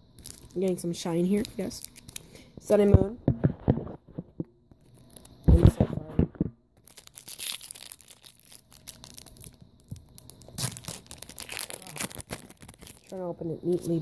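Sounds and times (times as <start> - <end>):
foil wrapper crinkling: 0.2 - 2.4, 6.8 - 13.4.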